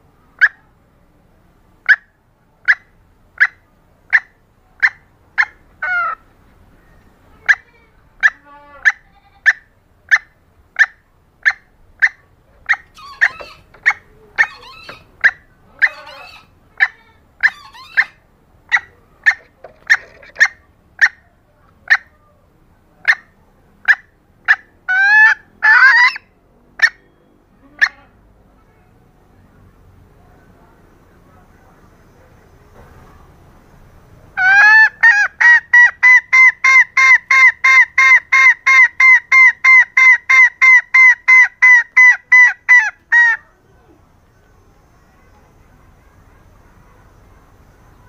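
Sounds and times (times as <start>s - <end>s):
hen clucking: 1.8s - 22.2s, 23.0s - 28.2s, 34.4s - 43.5s
hen squawking: 7.4s - 21.2s, 23.9s - 26.2s, 34.4s - 43.4s.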